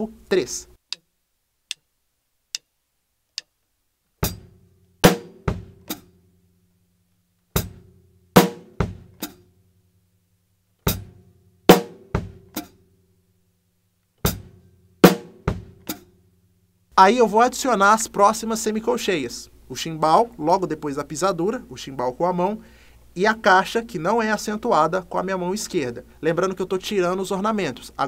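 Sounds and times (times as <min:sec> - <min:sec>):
faint metronome clicks: 0:00.8 - 0:01.9, 0:02.5 - 0:03.7
acoustic drum kit playing: 0:04.2 - 0:06.4, 0:07.5 - 0:09.5, 0:10.8 - 0:12.9, 0:14.2 - 0:16.3.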